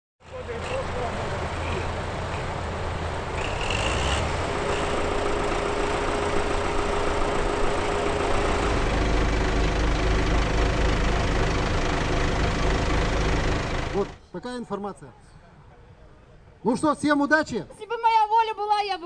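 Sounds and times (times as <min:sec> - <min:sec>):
deeper heavier engine sound: 0:00.2 - 0:14.2
tractor diesel engines idling: 0:00.2 - 0:14.3.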